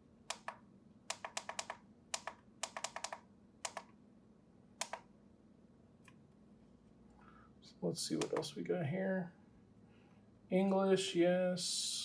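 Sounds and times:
push-buttons clicking: 0.3s - 3.9s, 4.8s - 5.1s, 8.2s - 8.5s.

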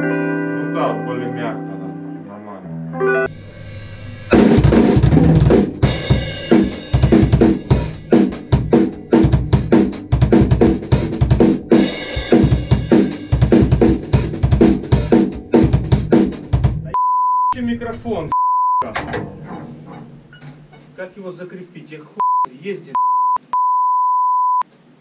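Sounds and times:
crash cymbal: 3.3s - 5.0s
drum kit playing fast groove: 3.3s - 17.0s.

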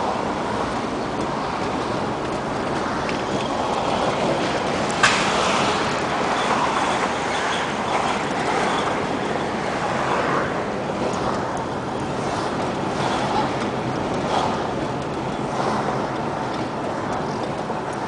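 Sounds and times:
road noise inside moving car: 0.0s - 18.0s.

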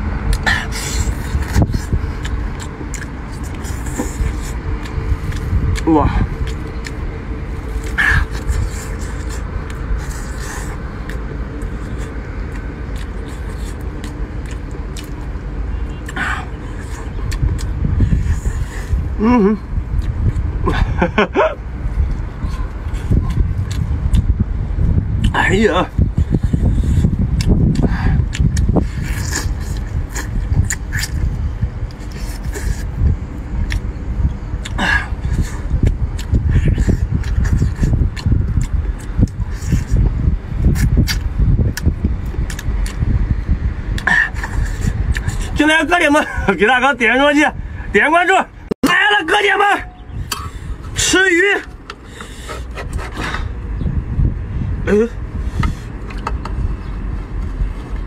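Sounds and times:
low engine rumble: 0.0s - 58.0s
lip smacks and slurps: 26.3s - 31.3s, 34.6s - 43.0s.

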